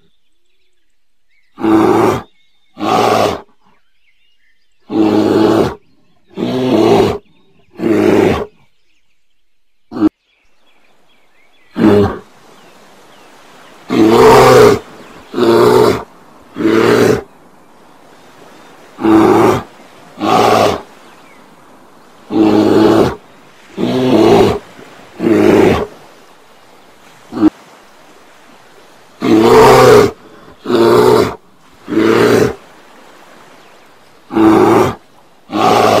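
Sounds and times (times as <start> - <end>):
bear growling roars: 13.9 - 17.3, 19.0 - 20.9, 22.2 - 26.0, 29.2 - 32.6, 34.3 - 36.0.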